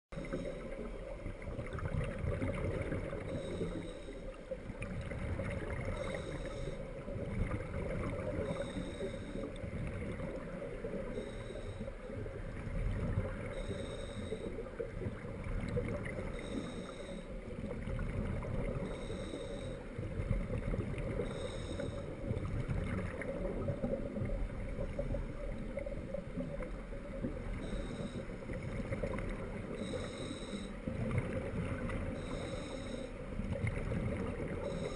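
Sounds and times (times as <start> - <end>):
underwater rumble and hiss: 0.1 - 34.9.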